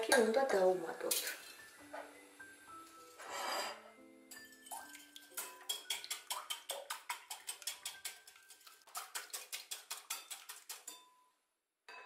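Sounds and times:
whisk clinking in glass bowl: 4.3s - 11.3s.

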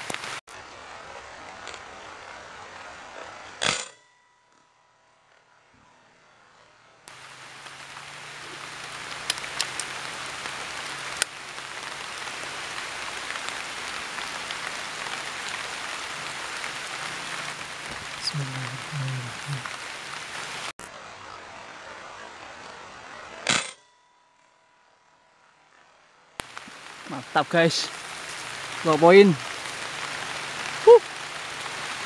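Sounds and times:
rain hissing: 0.0s - 2.8s, 7.1s - 20.8s, 26.4s - 32.0s.

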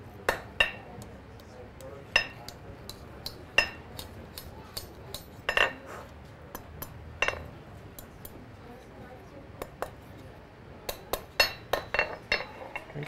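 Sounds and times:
hammer ringing on anvil: 0.3s - 0.9s.

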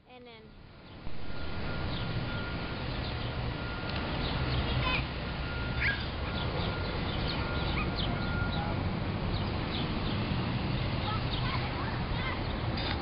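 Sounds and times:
city traffic rumble: 0.0s - 13.0s
small birds chirping: 5.7s - 12.7s.

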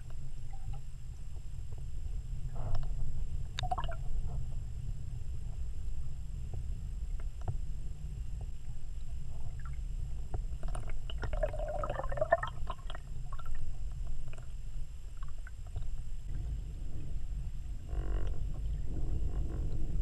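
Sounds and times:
low underwater rumble: 0.0s - 20.0s
water gurgle: 3.6s - 4.4s, 10.6s - 18.1s.

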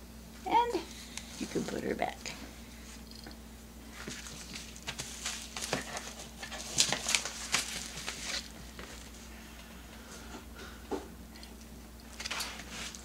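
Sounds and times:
paper mailer rustling and crinkling: 3.9s - 9.3s.

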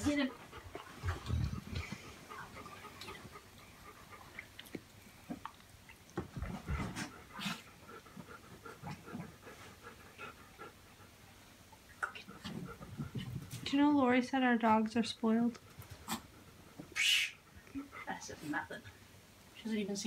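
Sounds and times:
dog panting: 0.0s - 4.9s, 6.4s - 13.7s, 15.6s - 19.0s
soft bumps and rustles: 12.4s - 13.9s.

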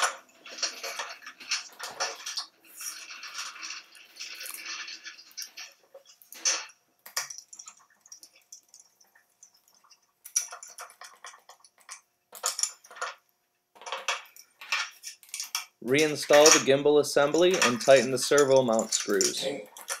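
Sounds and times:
small screws clinking: 0.0s - 13.2s, 13.8s - 20.0s
scraping and handling noises: 0.0s - 20.0s.

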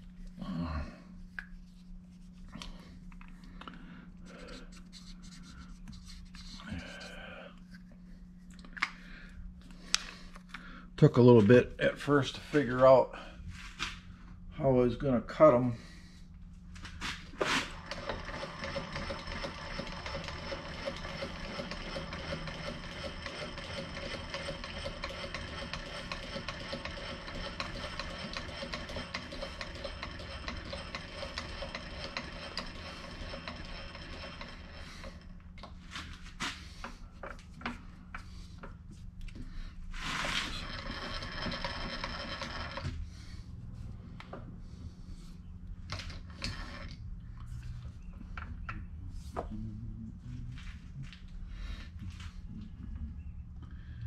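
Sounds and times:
milling machine whine: 17.4s - 35.7s, 40.0s - 43.0s, 45.9s - 47.0s.

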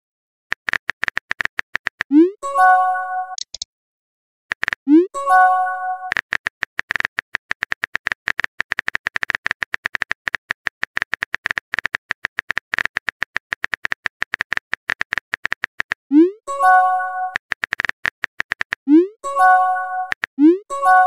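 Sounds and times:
keyboard typing clicks: 0.5s - 2.3s, 3.3s - 3.6s, 4.5s - 5.0s, 6.0s - 16.0s, 17.2s - 21.0s
message sent pop and chime: 2.1s - 3.5s, 4.9s - 6.1s, 16.5s - 17.4s, 19.0s - 21.0s.

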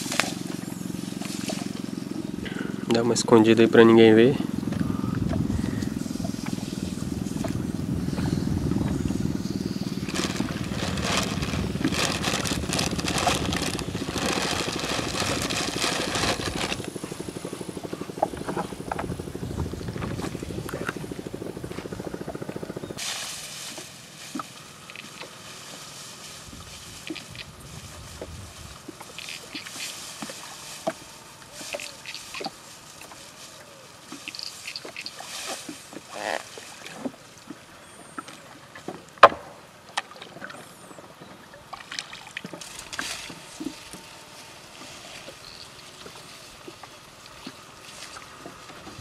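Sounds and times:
small engine running: 0.0s - 34.9s.

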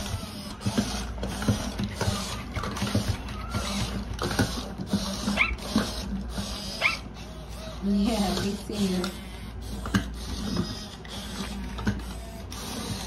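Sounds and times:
servo motors whirring: 0.0s - 13.0s
electronic puppy whimpers and yips: 1.9s - 4.2s, 5.0s - 7.7s.

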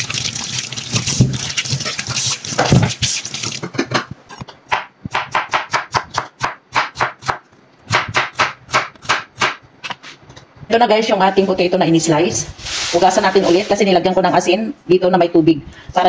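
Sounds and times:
water splashing in a sink: 0.0s - 3.8s.

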